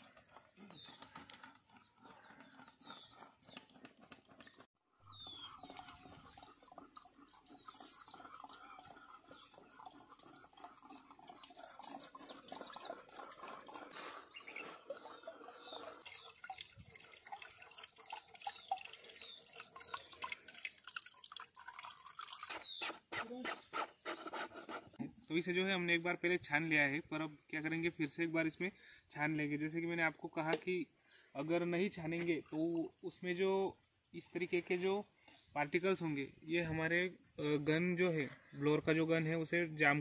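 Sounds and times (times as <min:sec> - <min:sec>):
faint birds chirping: 0:00.0 - 0:40.0
liquid dripping into bucket: 0:05.2 - 0:22.5.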